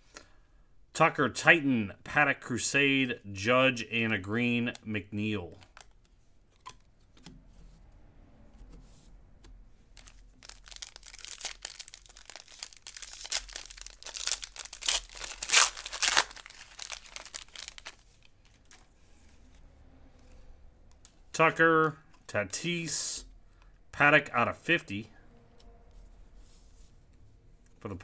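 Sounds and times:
foil wrapper tearing and crinkling: 10.0 - 18.2.

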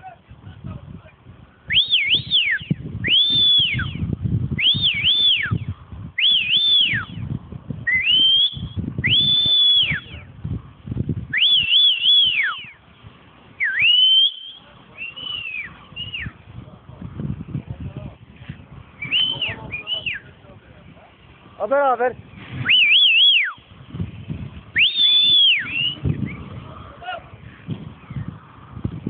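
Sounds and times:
low rumbling noise: 0.0 - 29.0
loud whistling: 1.7 - 10.3, 11.3 - 12.9, 13.6 - 16.4, 18.9 - 20.6, 22.3 - 23.7, 24.7 - 28.4.

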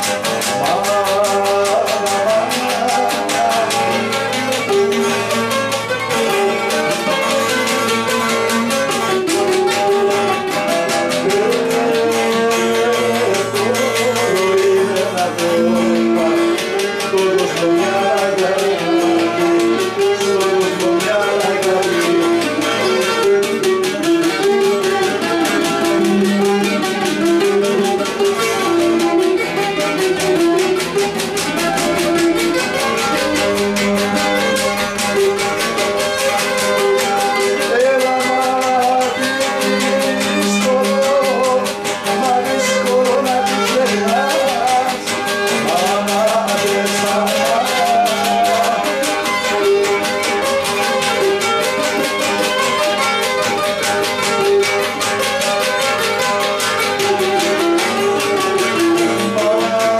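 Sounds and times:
bowed lyra melody: 0.0 - 59.9
lute and mandolin strumming: 0.0 - 59.9.

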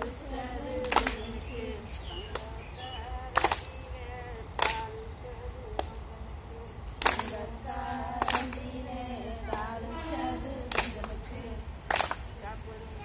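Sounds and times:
women singing folk song: 0.0 - 13.0
hand clapping: 0.8 - 1.4, 2.2 - 2.6, 3.3 - 5.0, 5.7 - 6.1, 6.9 - 7.5, 8.2 - 8.7, 10.7 - 11.2, 11.8 - 12.3.

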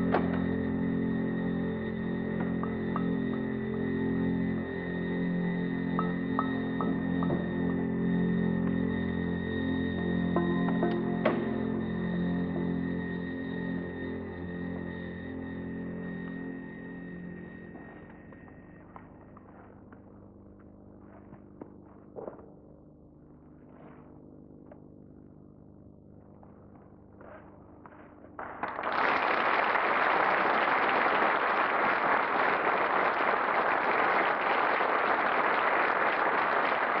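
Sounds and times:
faint steady hum: 0.0 - 37.0
audience applauding: 28.4 - 37.0.

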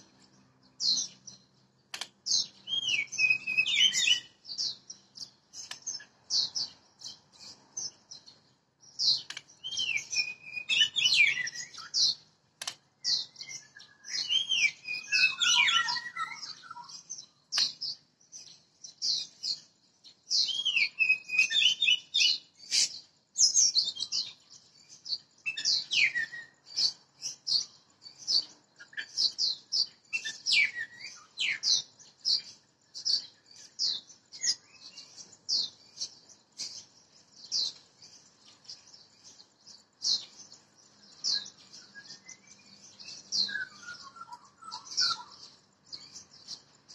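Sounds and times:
songbird singing: 0.0 - 46.9
sharp clicks: 1.9 - 2.2, 12.6 - 12.8.

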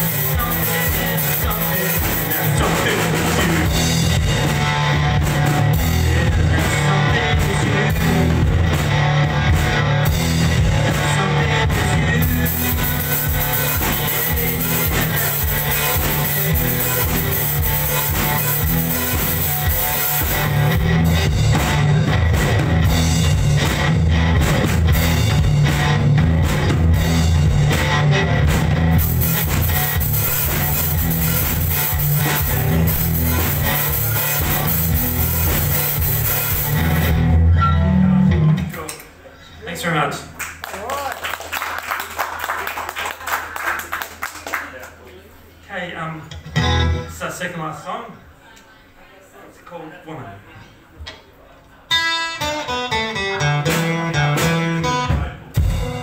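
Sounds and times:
drum kit beat: 0.0 - 37.4, 52.0 - 56.0
rock guitar: 0.0 - 39.1, 46.3 - 47.2, 51.8 - 56.0.

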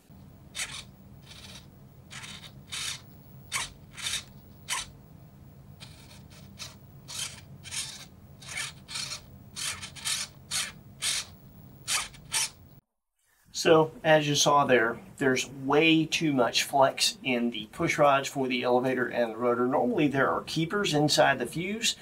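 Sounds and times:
servo whirring bursts: 0.0 - 5.0, 5.8 - 12.7
steady low hum: 0.0 - 12.8.

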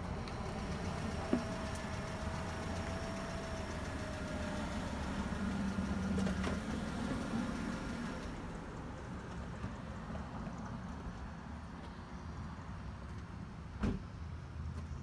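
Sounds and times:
car engine idling: 0.0 - 9.5
car passing on road: 0.0 - 14.8.

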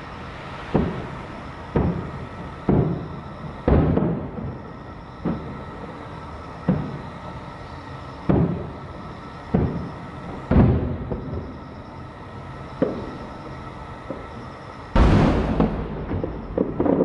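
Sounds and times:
distant firework booms: 15.0 - 17.0.

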